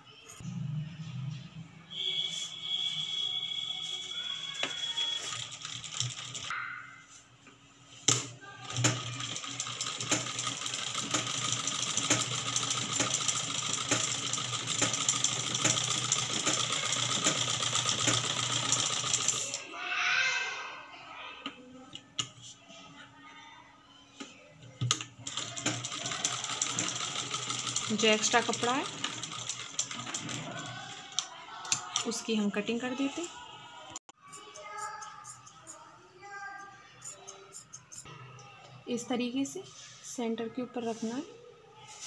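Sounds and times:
sewing machine clattering: 5.1 - 6.5, 8.2 - 19.6, 24.8 - 32.2.

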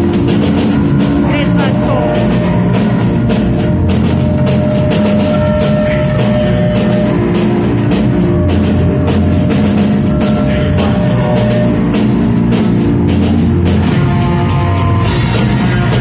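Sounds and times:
drum kit beat: 0.0 - 16.0
electric guitar: 0.0 - 16.0.

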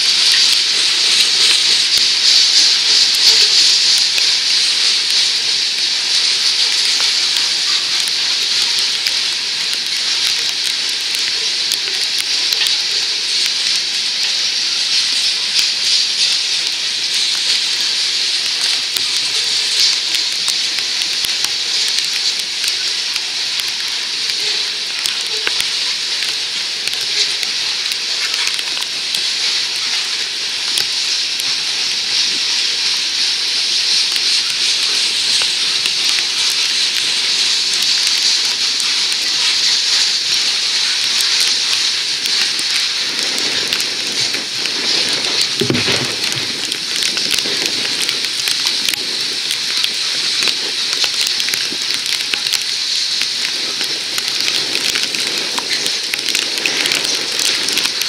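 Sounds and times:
freight train wheels on rails: 0.0 - 58.0
rain falling: 0.0 - 58.0
small scattered clicks: 15.5 - 31.6, 33.8 - 58.0.

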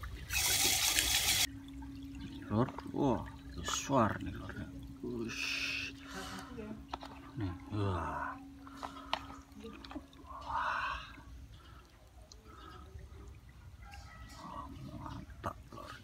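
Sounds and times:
water splash: 0.0 - 4.3
water sloshing and dripping: 0.0 - 16.0.

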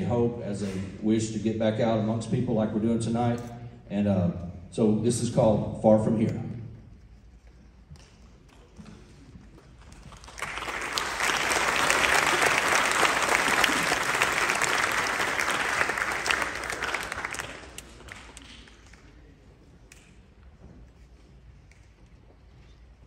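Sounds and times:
audience applauding: 9.8 - 19.1.

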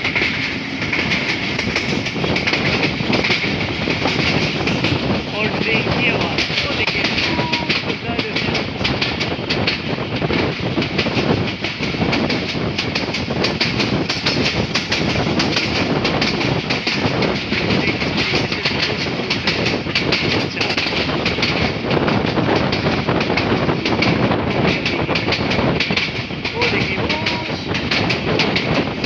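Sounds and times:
train wheels on rails: 0.0 - 29.0.

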